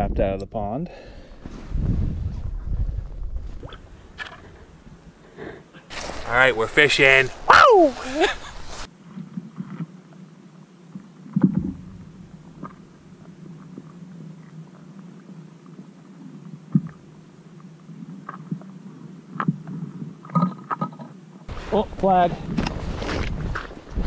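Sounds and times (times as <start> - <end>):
low underwater hum: 8.6 - 21.5.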